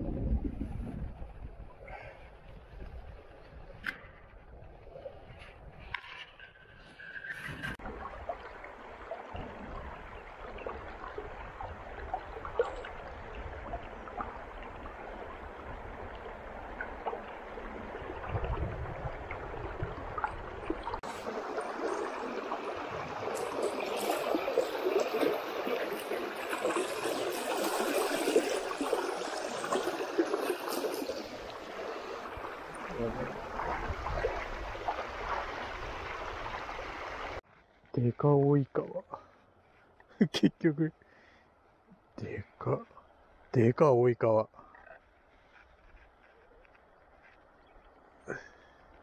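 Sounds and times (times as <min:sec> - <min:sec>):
river water gurgling: 0:07.7 - 0:37.4
small water splashes: 0:07.8 - 0:37.5.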